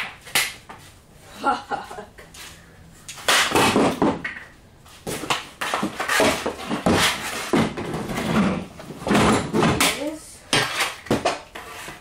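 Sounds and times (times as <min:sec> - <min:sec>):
hard objects knocking and clattering: 0:05.1 - 0:11.5.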